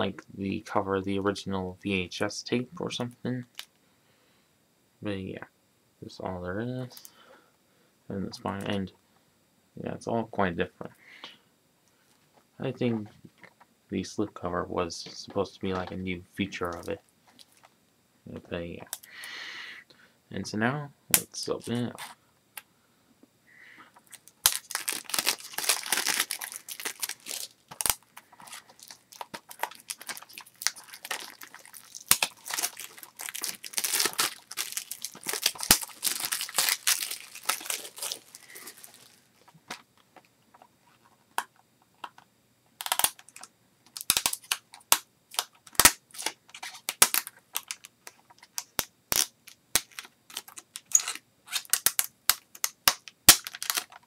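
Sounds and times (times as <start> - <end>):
plastic shrink-wrap crackling: 24.0 - 39.8, 42.8 - 54.0.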